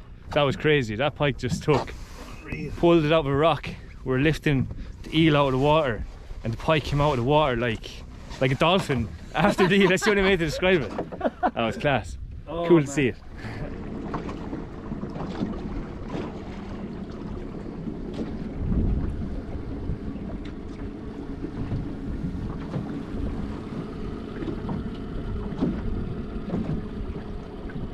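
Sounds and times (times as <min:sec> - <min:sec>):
outboard motor running: 0:00.0 - 0:27.9
wind buffeting microphone: 0:12.0 - 0:27.9.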